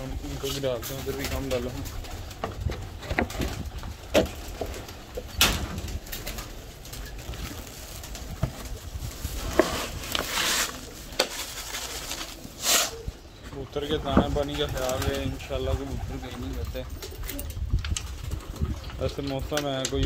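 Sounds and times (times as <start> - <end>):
plastic bag crinkling: 6.0 - 12.5.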